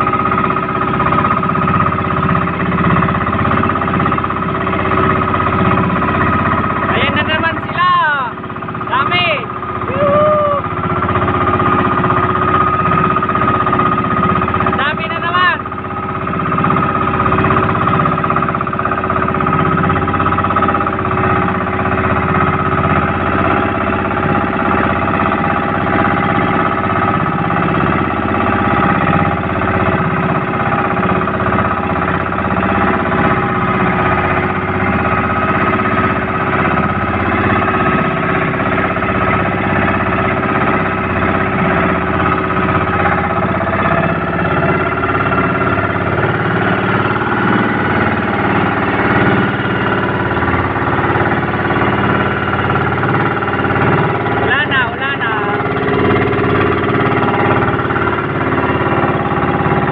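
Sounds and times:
boat engine droning: 0:00.0 - 0:59.9.

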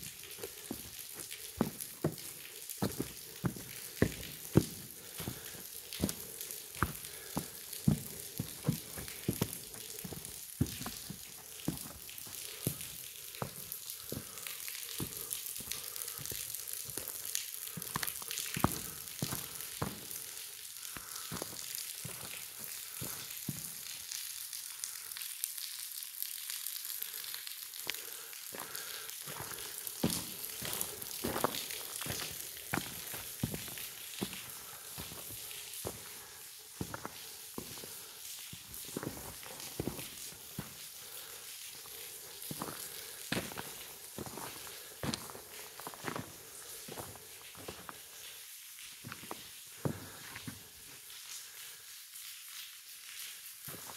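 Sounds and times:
water splashing: 0:00.0 - 0:16.3
faint steady hiss: 0:00.0 - 0:53.9.

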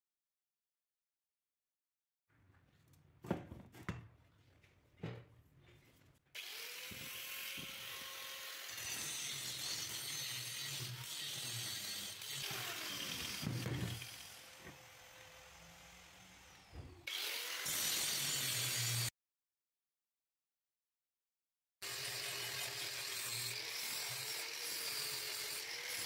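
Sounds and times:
angle grinder grinding steel: 0:06.4 - 0:19.1, 0:21.8 - 0:26.0.

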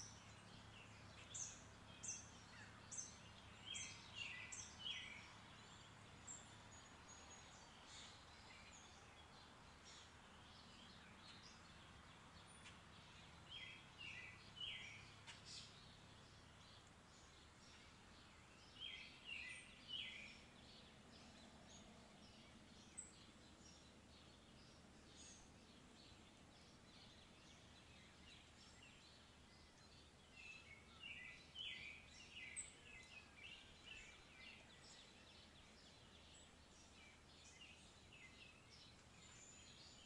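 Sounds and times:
birds chirping: 0:00.0 - 0:40.0
steady background hiss: 0:00.0 - 0:40.0.

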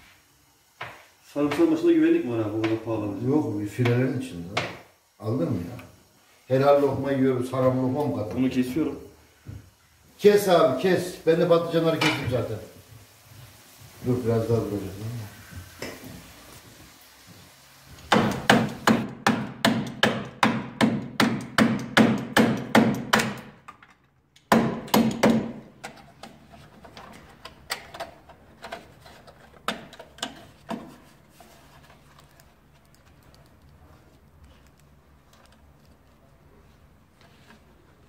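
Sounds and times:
hard knocks: 0:18.1 - 0:23.6, 0:24.5 - 0:25.6.

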